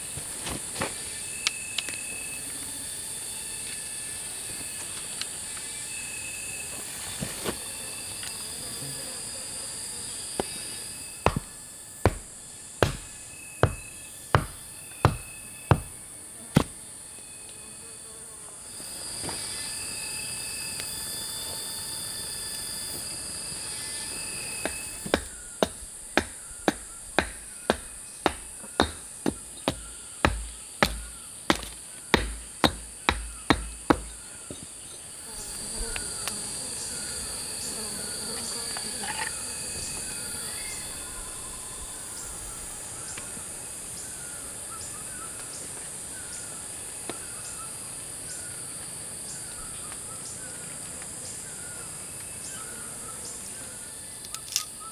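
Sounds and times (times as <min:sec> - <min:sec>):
insects buzzing: 0:00.0 - 0:54.9
chopping strikes: 0:11.2 - 0:16.8, 0:24.6 - 0:34.6.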